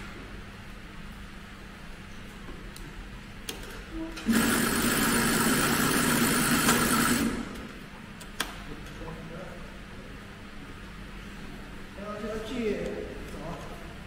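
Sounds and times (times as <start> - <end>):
sewing machine running: 4.2 - 7.6.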